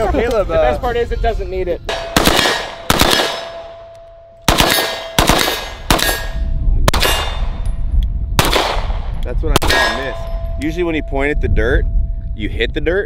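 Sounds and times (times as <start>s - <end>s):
rifle shots: 1.9s - 3.9s, 4.5s - 7.6s, 8.4s - 10.3s
steel targets ringing: 9.7s - 11.4s.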